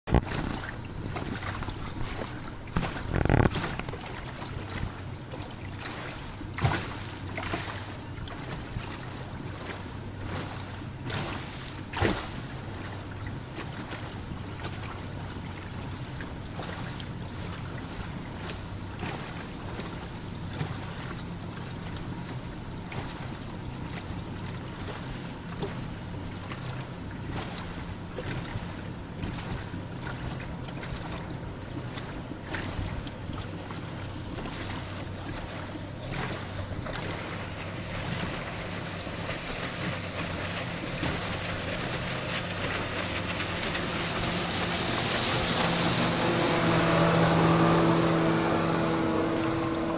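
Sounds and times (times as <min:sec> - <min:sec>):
wind on microphone: 0:00.0 - 0:05.0
motorboat engine humming: 0:00.0 - 0:49.9
water splashing against hull: 0:00.0 - 0:49.9.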